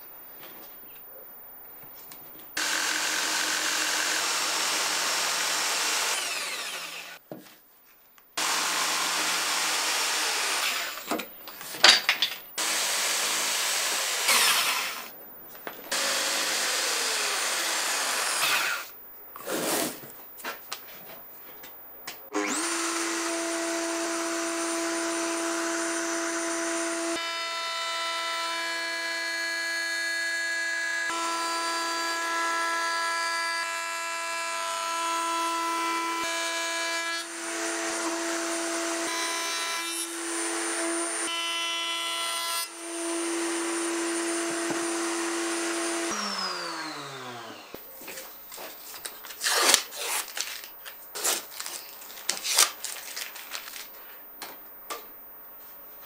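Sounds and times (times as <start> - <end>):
jigsaw cutting plywood: 2.6 - 7.2, 8.4 - 11.2, 12.6 - 15.1, 15.9 - 18.9, 22.3 - 47.8
router whining: 2.6 - 7.2, 8.4 - 11.2, 12.6 - 15.1, 15.9 - 18.9, 22.3 - 48.1.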